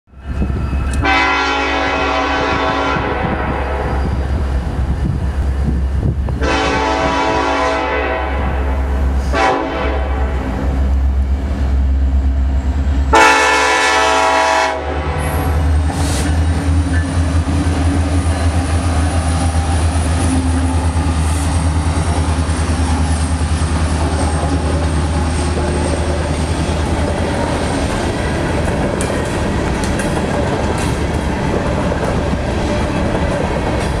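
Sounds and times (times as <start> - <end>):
rolling train cars: 0.1 - 34.0
locomotive horn blast: 0.9 - 4.2, 6.4 - 10.9, 13.1 - 16.2.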